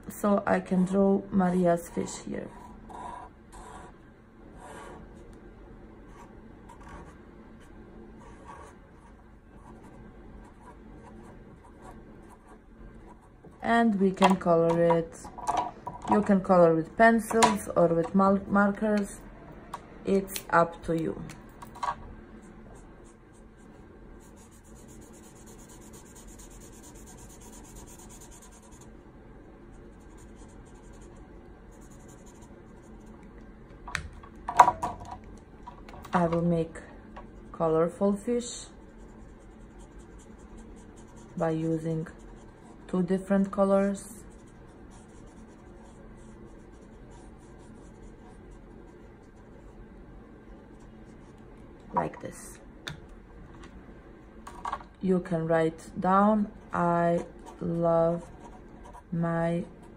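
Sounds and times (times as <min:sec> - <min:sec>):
marker pen drawing on paper: 0:01.9 - 0:04.0, 0:04.6 - 0:05.2, 0:06.1 - 0:13.4, 0:24.2 - 0:28.9, 0:29.7 - 0:33.2, 0:39.0 - 0:49.8.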